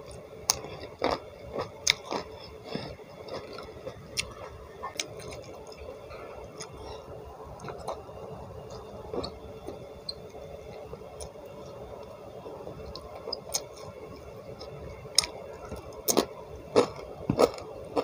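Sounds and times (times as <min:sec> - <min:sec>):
person chewing with wet clicks: 0:00.0 - 0:06.8, 0:10.7 - 0:12.2, 0:12.8 - 0:13.9, 0:14.6 - 0:18.0.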